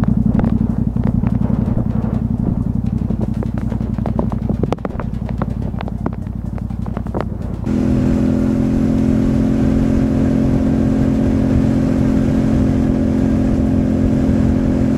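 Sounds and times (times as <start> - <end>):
sharp ticks: 0.0 - 7.7
tyre and wind noise: 0.0 - 7.9
low hum: 0.0 - 14.9
motorcycle engine cruising: 0.0 - 14.9.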